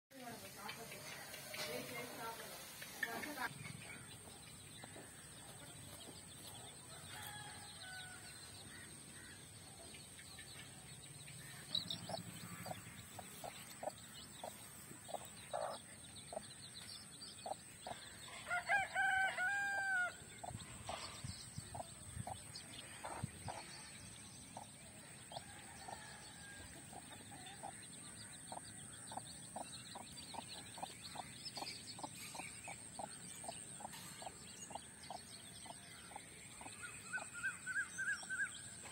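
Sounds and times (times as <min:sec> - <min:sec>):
rooster crowing: 0:06.9 - 0:08.4, 0:18.3 - 0:20.2
hen clucking: 0:11.5 - 0:16.4.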